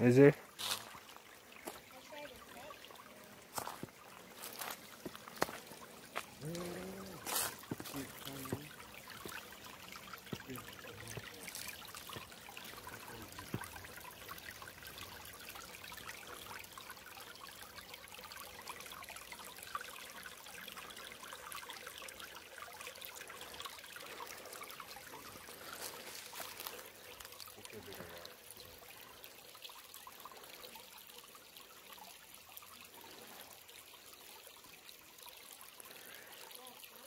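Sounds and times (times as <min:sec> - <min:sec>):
creek trickling over stones: 0:00.0 - 0:37.0.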